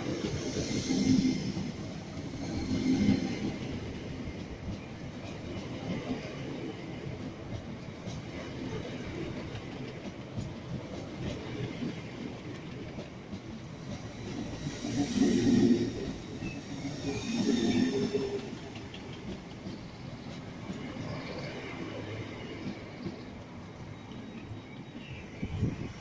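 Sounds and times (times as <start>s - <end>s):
hiss: 0.0s - 3.9s, 13.8s - 19.1s
train wheels rumbling over rails: 0.0s - 26.0s.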